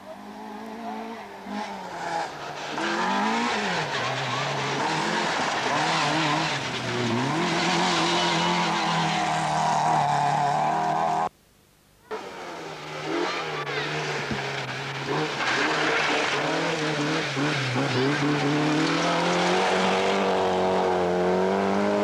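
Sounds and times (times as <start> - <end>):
rally car engine revving: 0.0 - 11.3, 12.1 - 22.0
tyres hissing on gravel: 13.8 - 17.9.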